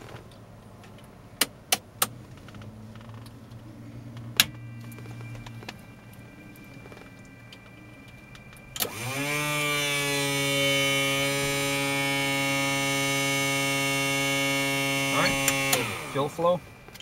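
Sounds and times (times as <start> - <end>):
electric pump motor whining: 4.4 - 17.0.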